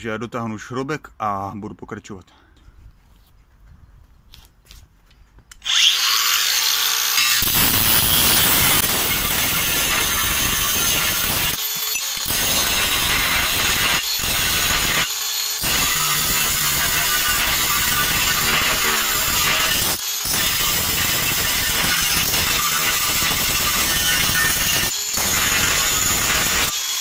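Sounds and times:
angle grinder cutting steel: 5.6 - 27.0.

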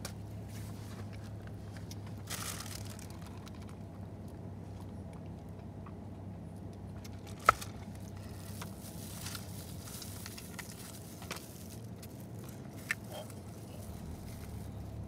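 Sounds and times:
steady low hum: 0.0 - 15.0
plastic glove and cardboard crackling: 1.9 - 3.9, 7.1 - 15.0.

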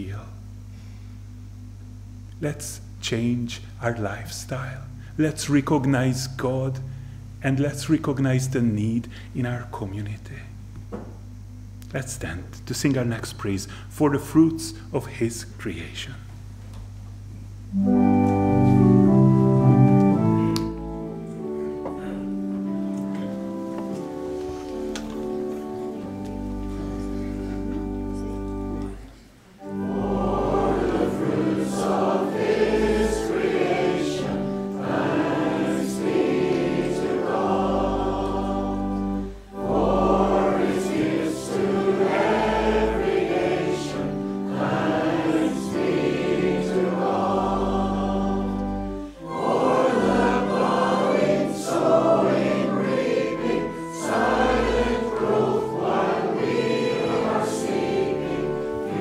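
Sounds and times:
instrumental accompaniment: 17.6 - 59.0
choir and congregation singing hymn: 17.8 - 59.0.

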